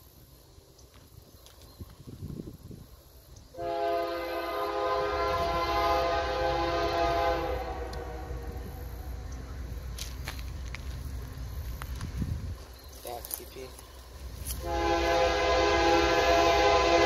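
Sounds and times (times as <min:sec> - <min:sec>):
low rumble of train: 0:00.0 - 0:17.0
locomotive air horn blast: 0:03.6 - 0:09.0, 0:14.6 - 0:17.0.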